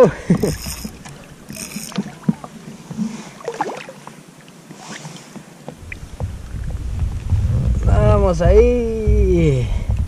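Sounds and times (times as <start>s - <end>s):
water lapping and splashing: 0.0s - 7.9s
wind rumble on microphone: 5.8s - 10.0s.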